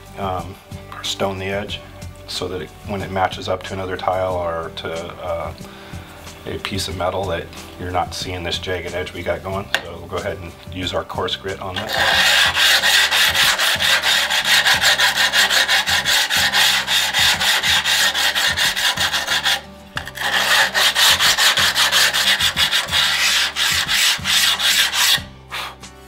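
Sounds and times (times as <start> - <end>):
hand file rubbing tile edge: 11.8 - 25.8.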